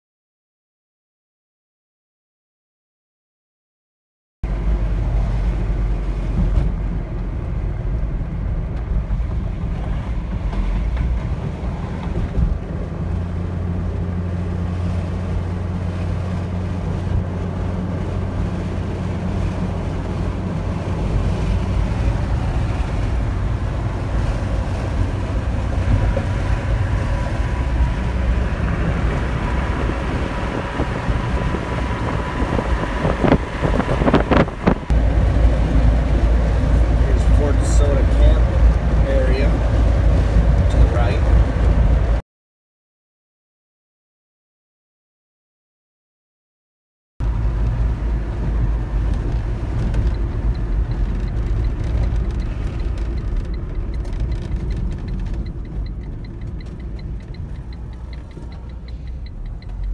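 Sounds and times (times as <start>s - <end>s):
tyre and engine rumble: 4.4s - 42.2s, 47.2s - 59.9s
wind noise: 4.6s - 42.2s.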